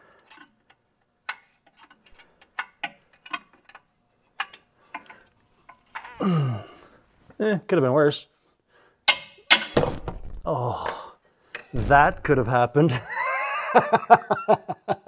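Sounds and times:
man groaning: 0:06.2 - 0:06.8, 0:10.4 - 0:11.1.

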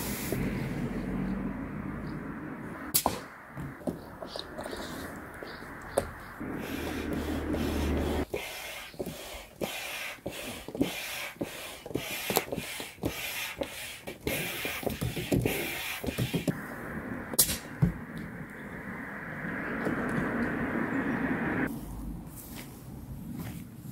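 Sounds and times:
hand air pump strokes: 0:06.4 - 0:16.6.

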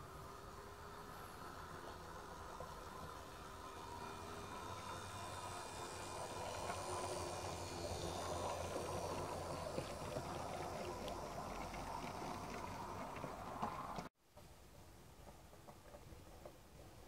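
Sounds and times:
model locomotive motor running: 0:00.0 - 0:14.1
wagons rattling along track: 0:01.3 - 0:14.1.

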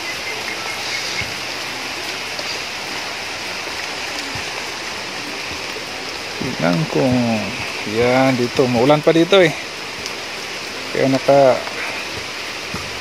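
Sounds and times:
rain falling: 0:00.0 - 0:13.0
soft thumps: 0:12.1 - 0:13.0.

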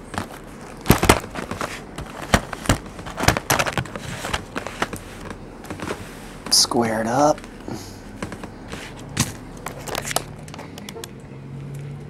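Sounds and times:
cardboard boxes knocking on table: 0:00.1 - 0:06.0.

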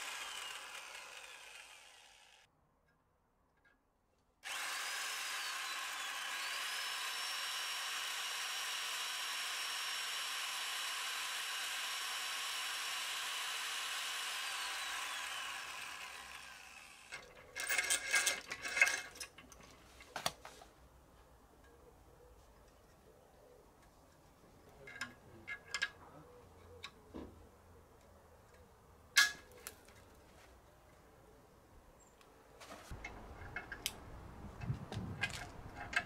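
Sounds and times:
cordless drill running: 0:00.0 - 0:02.5, 0:04.4 - 0:17.3.

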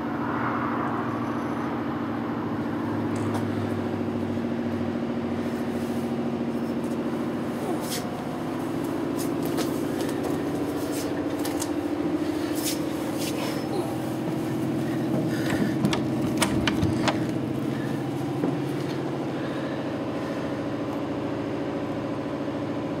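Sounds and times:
steady machinery hum: 0:00.0 - 0:23.0
sharp clicks and knocks: 0:15.1 - 0:17.4.

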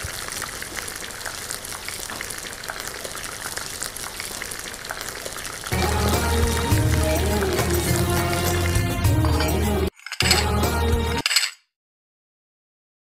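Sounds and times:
oil sizzling and popping: 0:00.0 - 0:10.1
background music: 0:05.7 - 0:11.5.

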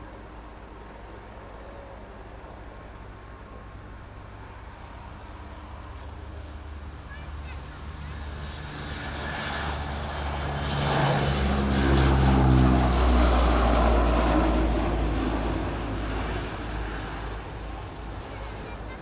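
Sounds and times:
turboprop aircraft passing: 0:00.0 - 0:19.0.

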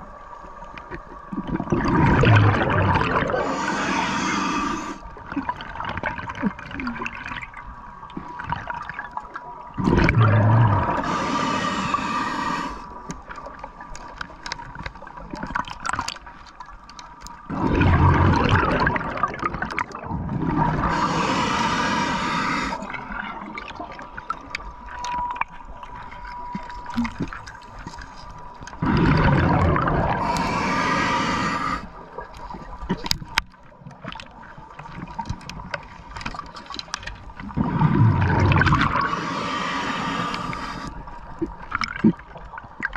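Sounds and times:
water noise: 0:00.0 - 0:42.9
bubbling exhalation: 0:01.3 - 0:05.0, 0:09.8 - 0:12.8, 0:17.5 - 0:23.7, 0:28.8 - 0:31.9, 0:37.6 - 0:40.8
diver breathing through regulator: 0:02.6 - 0:05.0, 0:09.9 - 0:13.0, 0:20.5 - 0:23.3, 0:28.8 - 0:32.0, 0:37.6 - 0:41.0
faint steady tone: 0:21.0 - 0:28.8.

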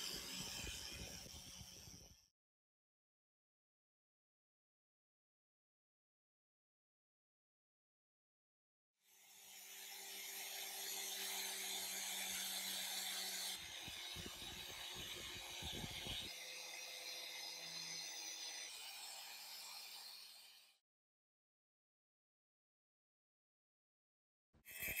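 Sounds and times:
angle grinder buffing steel: 0:09.3 - 0:20.8.

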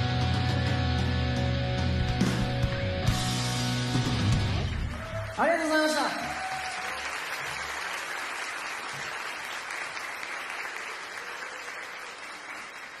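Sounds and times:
audience applauding: 0:04.3 - 0:13.0.

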